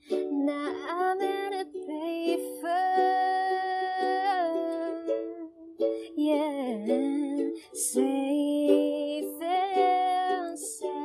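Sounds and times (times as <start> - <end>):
person singing: 0.0 - 11.0
ukulele playing: 0.0 - 11.0.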